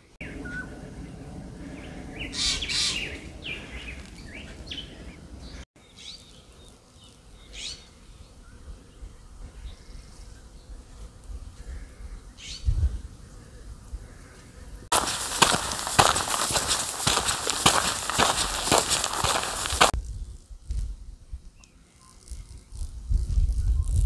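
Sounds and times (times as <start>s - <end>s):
birds chirping: 0.0s - 8.4s, 14.9s - 19.9s.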